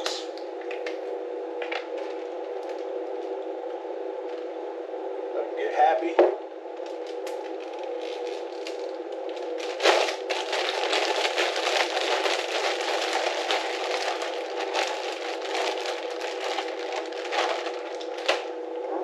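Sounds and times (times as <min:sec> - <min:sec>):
fish pieces crackling and rustling: 0:09.4 - 0:18.5.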